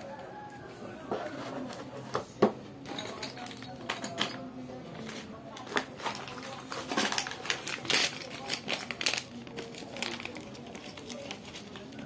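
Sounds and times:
metal pieces clinking: 5.0 - 9.3
plastic bag crinkling: 5.6 - 12.0.

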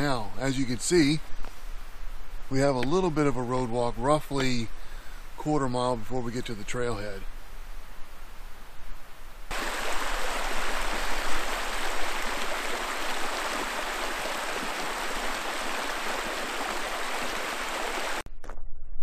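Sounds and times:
creek rushing over stones: 9.5 - 18.2.

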